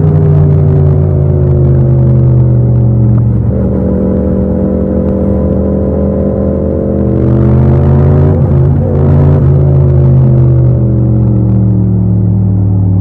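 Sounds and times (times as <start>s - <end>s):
motorcycle engine running: 0.0s - 13.0s.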